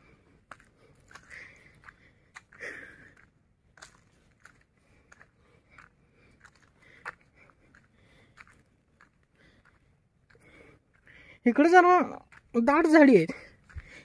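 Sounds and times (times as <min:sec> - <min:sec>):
footsteps crunching on dry leaves: 0:00.4 - 0:11.1.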